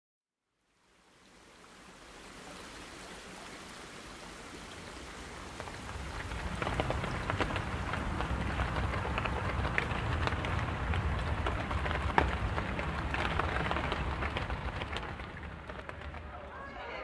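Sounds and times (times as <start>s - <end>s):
water pattering like rain: 0.6s - 17.0s
low rumble: 5.7s - 17.0s.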